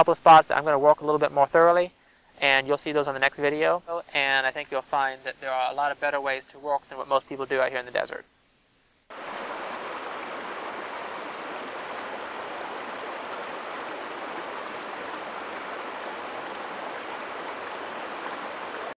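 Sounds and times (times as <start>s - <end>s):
water rushing over rocks: 9.1s - 19.0s.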